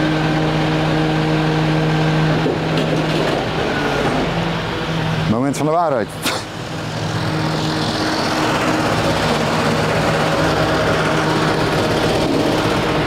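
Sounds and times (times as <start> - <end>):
engine humming: 0.0 - 13.0.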